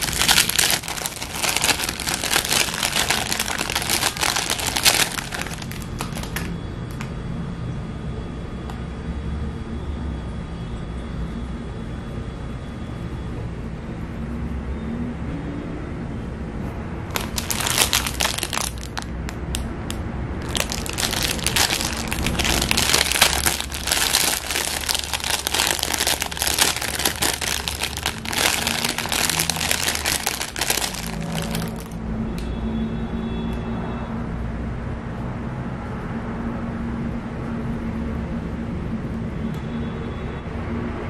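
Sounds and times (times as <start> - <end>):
plastic bag crinkling: 0.0 - 7.0, 17.1 - 19.6, 20.4 - 32.0
low background hum: 0.0 - 32.1.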